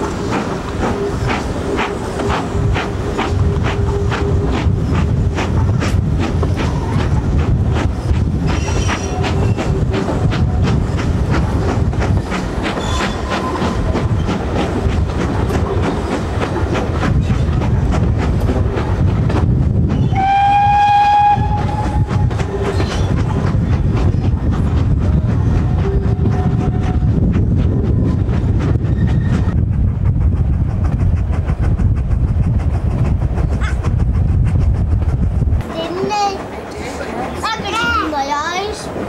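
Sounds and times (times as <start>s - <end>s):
wheels clicking over rail joints: 0.0s - 27.8s
train rumble: 0.0s - 39.0s
steam locomotive whistle: 20.1s - 22.8s.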